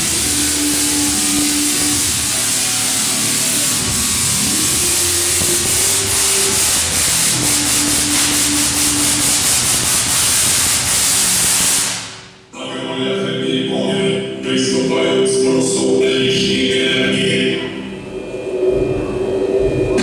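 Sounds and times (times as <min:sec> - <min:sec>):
tesla coil crackling buzz: 0:00.0 - 0:12.3.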